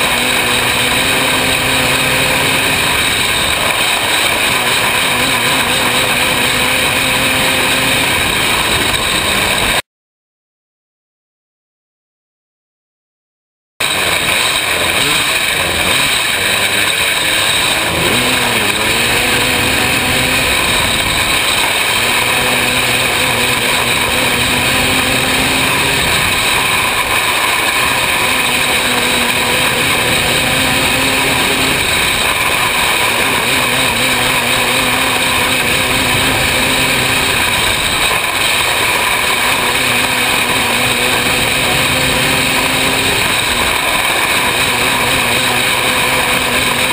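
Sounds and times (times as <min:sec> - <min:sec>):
race car engine revving: 0:00.0 - 0:09.8, 0:13.8 - 0:46.9
wind and track noise: 0:00.0 - 0:09.8, 0:13.8 - 0:46.9.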